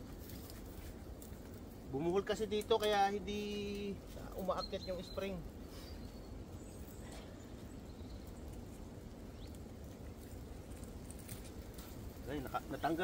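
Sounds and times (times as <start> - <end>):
clicks and scrapes of wire cable: 10.1 - 12.2.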